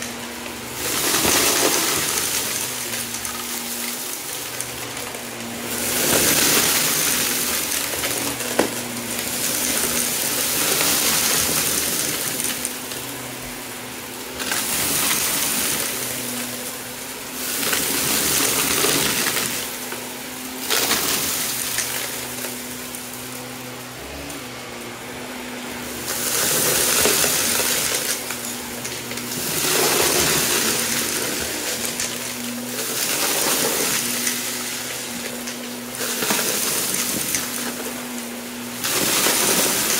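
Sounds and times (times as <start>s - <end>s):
debris rattling up vacuum nozzle: 0.0s - 39.9s
upright vacuum running: 0.0s - 39.9s.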